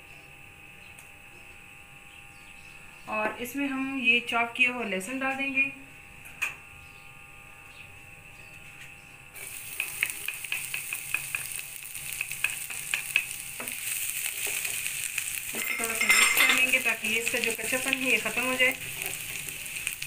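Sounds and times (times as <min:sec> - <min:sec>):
garlic sizzling in hot oil: 0:09.4 - 0:20.0.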